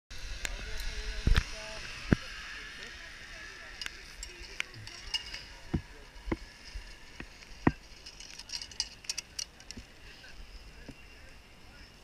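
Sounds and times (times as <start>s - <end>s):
light metal clinks: 3.8s - 5.7s, 7.7s - 10.9s.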